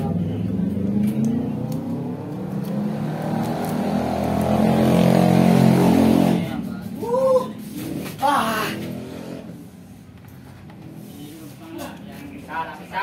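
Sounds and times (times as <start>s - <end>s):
vehicle engine revving: 0.0s - 6.7s, 7.7s - 9.9s.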